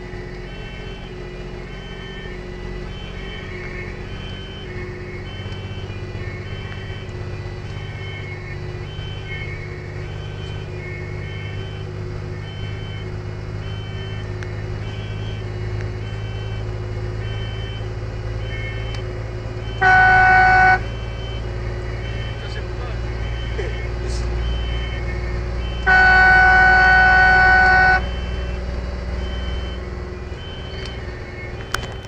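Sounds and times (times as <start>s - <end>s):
engine and road noise drone: 0.0s - 32.0s
two-tone siren: 0.0s - 32.0s
loud horn blast: 19.7s - 20.9s, 25.6s - 28.2s.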